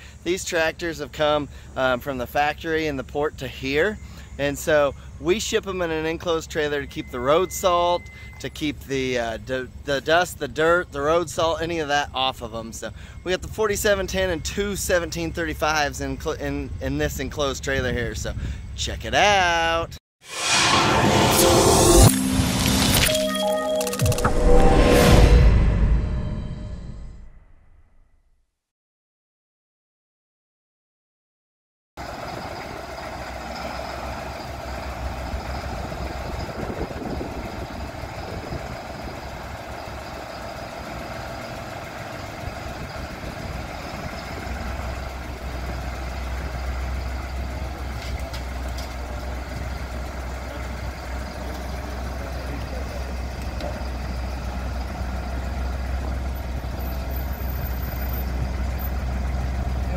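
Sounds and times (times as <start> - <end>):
tractor diesel engine running: 0.0 - 18.7, 32.0 - 59.9.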